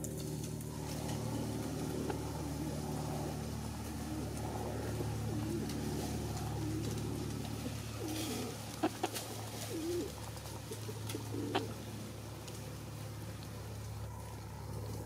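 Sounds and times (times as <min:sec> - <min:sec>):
steady low hum: 0:00.0 - 0:15.0
soft low wavering bird calls: 0:07.6 - 0:12.0.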